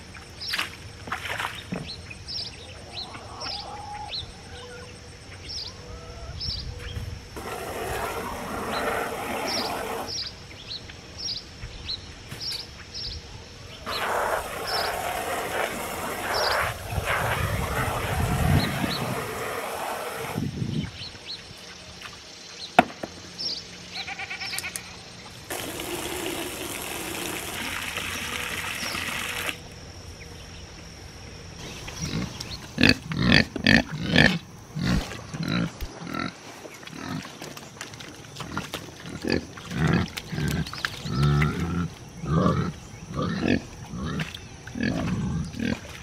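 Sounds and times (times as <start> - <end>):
hose running into a pan: 13.9 - 20.4, 25.5 - 29.6
pigs grunting: 31.9 - 37.5, 38.4 - 46.0.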